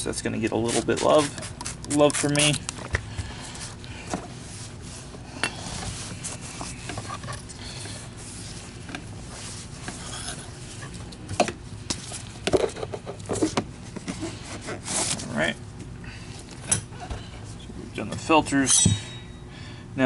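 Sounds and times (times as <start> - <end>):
cloth wiping plastic: 7.9 - 11.0.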